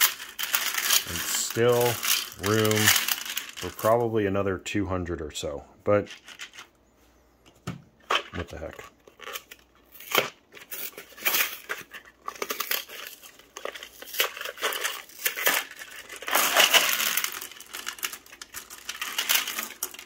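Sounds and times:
cardboard boxes tearing and crumpling: 0.7s - 3.6s, 9.4s - 19.9s.

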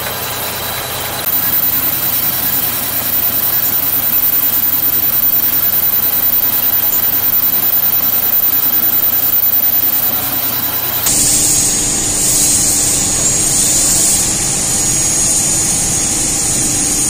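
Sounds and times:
milling machine cutting metal: 10.1s - 17.0s.

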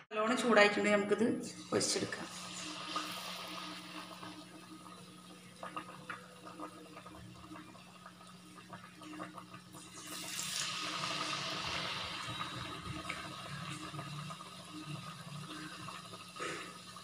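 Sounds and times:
fritters sizzling in hot oil: 1.6s - 4.5s, 9.8s - 15.8s.

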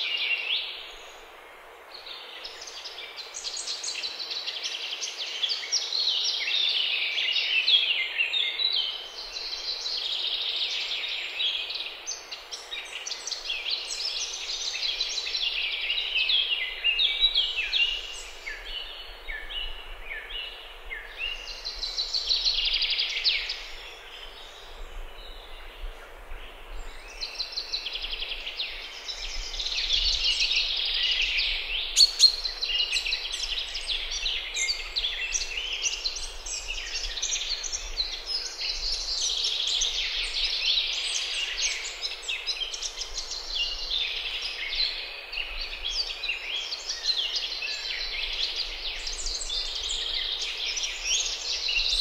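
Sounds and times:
birds chirping and trilling: 26.5s - 52.0s.

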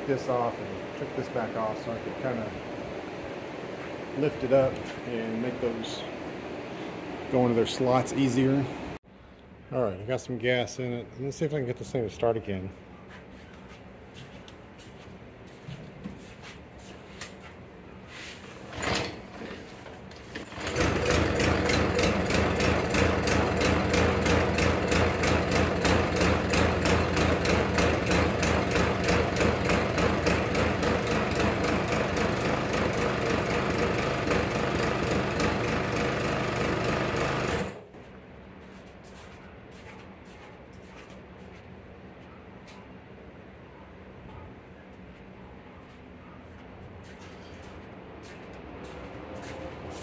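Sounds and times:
lawn mower engine running: 18.6s - 37.9s.

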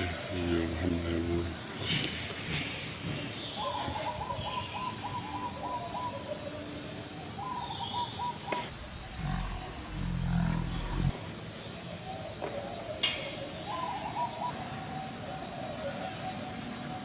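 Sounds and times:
animal chattering calls: 8.7s - 11.2s
loud low rough animal call: 8.7s - 11.2s.

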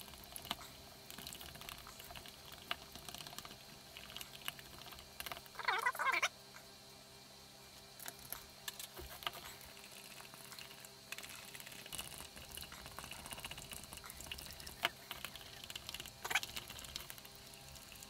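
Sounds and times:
resin stirred in plastic cup: 8.0s - 18.0s.

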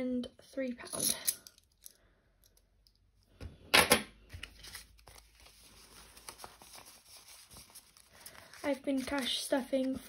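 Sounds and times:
banknotes rustling: 4.2s - 10.0s.

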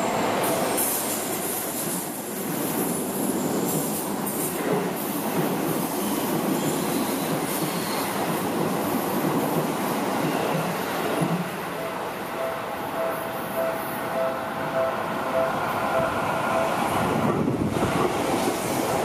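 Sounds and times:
train wheels rumbling on rail: 0.0s - 12.2s, 14.6s - 19.0s.

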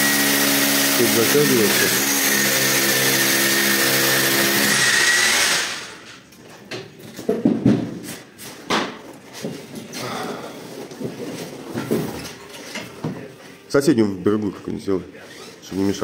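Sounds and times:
electric drill running: 0.0s - 6.2s.

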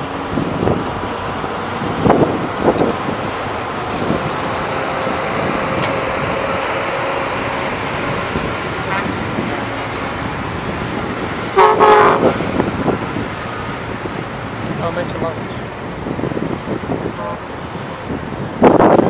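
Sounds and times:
distant earthmoving machinery: 0.0s - 16.0s
wind: 0.0s - 19.0s
horn toot: 8.8s - 9.2s, 11.6s - 12.4s.

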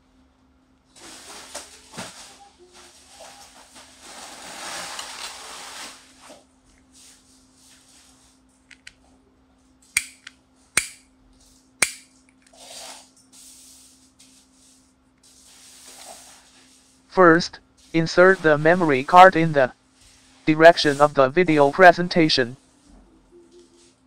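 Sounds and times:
sharp clip clicks: 10.0s - 11.1s, 11.8s - 12.1s.

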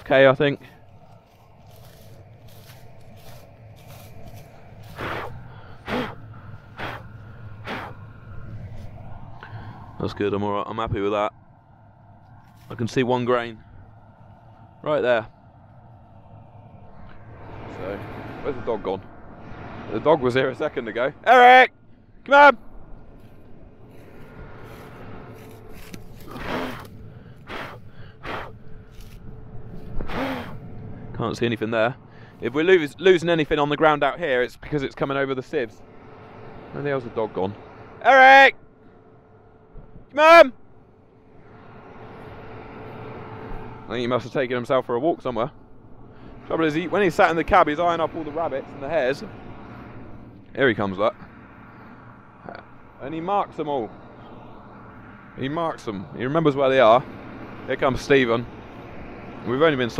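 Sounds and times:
low engine hum: 0.0s - 59.9s
dry straw rustling: 0.4s - 9.7s, 12.2s - 13.0s, 23.1s - 30.4s
man breathing hard: 4.8s - 8.4s, 9.3s - 10.0s, 26.2s - 29.1s, 32.0s - 32.4s.

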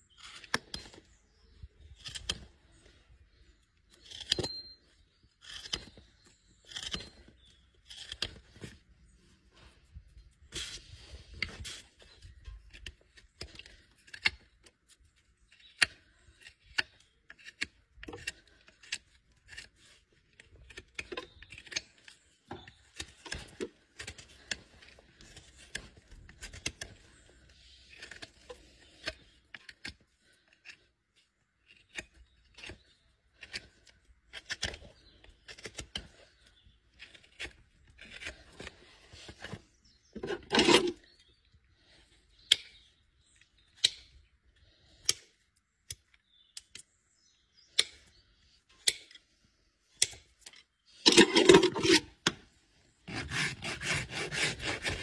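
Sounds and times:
knife scraping hoof: 0.1s - 45.4s, 50.0s - 55.0s.

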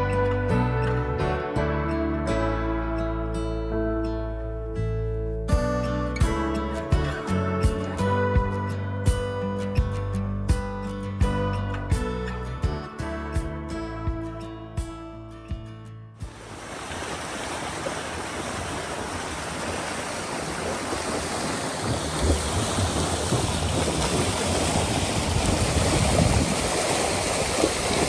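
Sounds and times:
guitar music: 0.0s - 16.3s
water splashing along boat hull: 16.3s - 28.0s.

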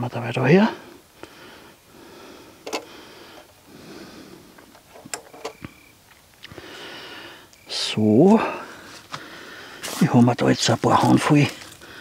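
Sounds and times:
man breathing heavily: 0.7s - 4.7s, 6.5s - 7.5s, 8.2s - 10.0s, 11.6s - 12.0s.

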